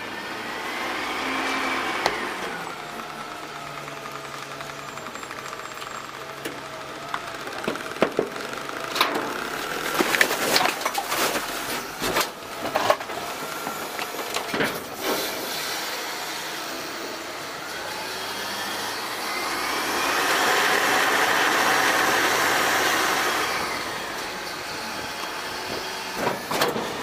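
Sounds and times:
garbage truck engine humming: 0.0s - 27.0s
trash cart knocking and clattering: 7.4s - 15.0s, 25.6s - 27.0s.

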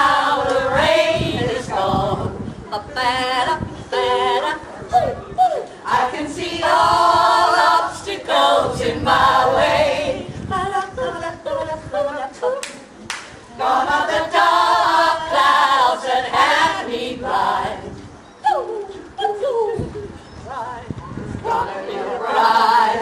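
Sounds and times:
women's choir singing: 0.0s - 4.8s, 5.8s - 12.6s, 13.6s - 18.0s, 20.5s - 23.0s.

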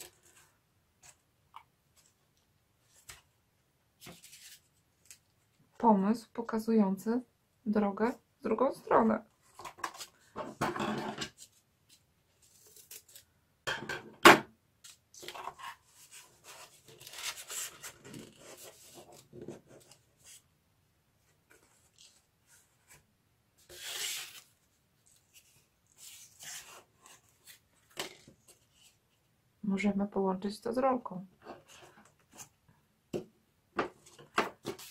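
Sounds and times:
cardboard rustling and scraping: 4.0s - 4.8s, 15.2s - 20.5s, 33.9s - 34.9s.

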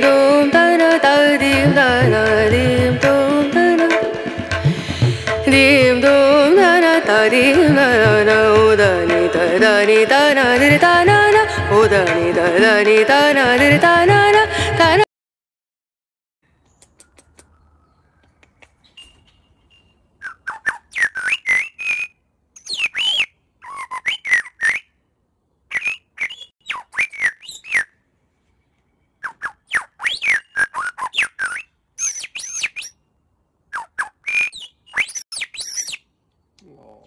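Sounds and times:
bird singing whistled notes: 16.6s - 25.0s, 25.7s - 28.0s, 28.9s - 33.1s, 33.8s - 36.1s.

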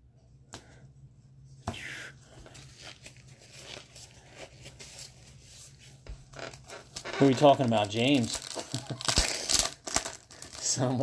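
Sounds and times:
foil wrapper crinkling: 6.3s - 11.0s
foil wrapper tearing: 6.4s - 11.0s.

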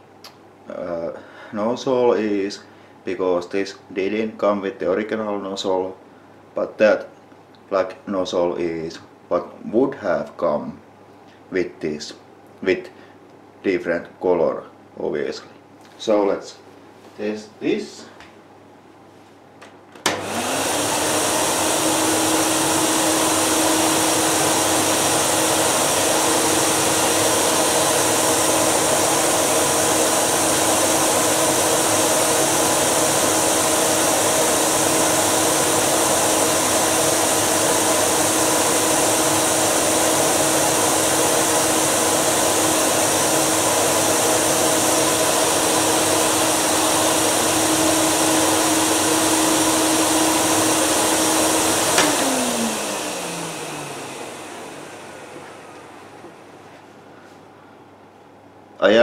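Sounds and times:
vacuum switch click: 20.0s - 20.4s, 51.9s - 52.3s
vacuum cleaner motor running: 20.0s - 56.6s.

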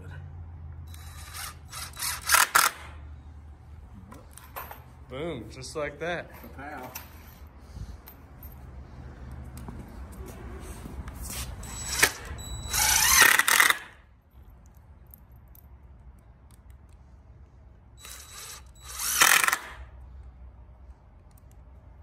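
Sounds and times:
cordless drill driving screws into wood: 0.9s - 3.0s, 11.6s - 14.0s, 18.0s - 19.9s.

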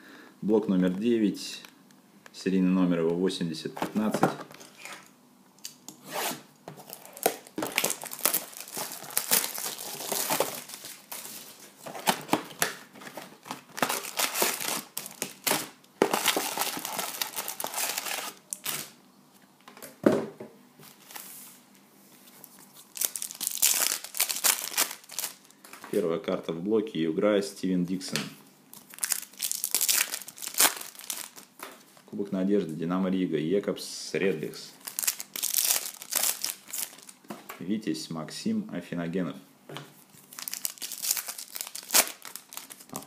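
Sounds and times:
foil pack crinkling torn open: 6.8s - 11.3s, 13.4s - 18.9s, 22.9s - 25.5s, 28.8s - 31.6s, 34.8s - 37.2s, 40.3s - 43.0s
paper packs being handled: 6.8s - 18.9s, 28.9s - 32.0s, 34.8s - 37.2s, 40.3s - 43.0s
shrink-wrap crinkling and tearing: 6.8s - 19.0s, 22.8s - 25.9s, 28.8s - 31.6s, 34.8s - 37.2s, 40.2s - 43.0s.

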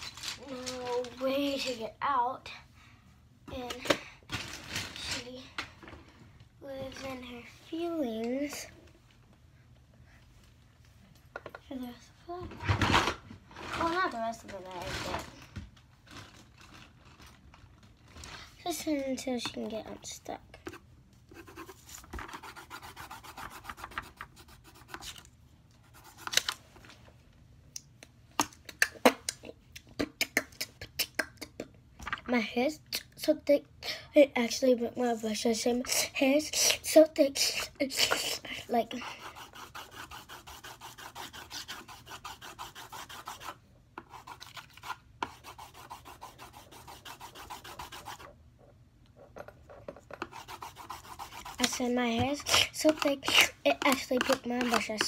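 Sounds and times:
colored pencil scratching on paper: 20.6s - 26.4s, 37.4s - 48.3s, 50.2s - 55.0s.

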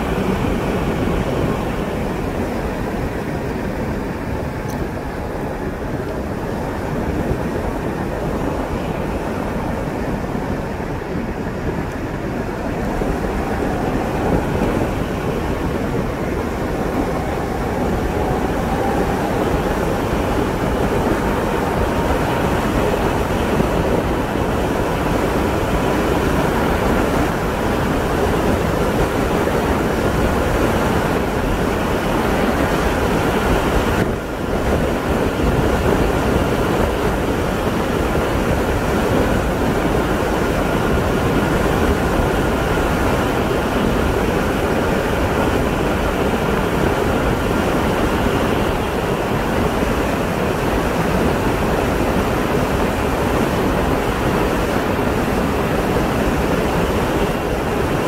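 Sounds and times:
wind rushing: 0.0s - 58.0s.

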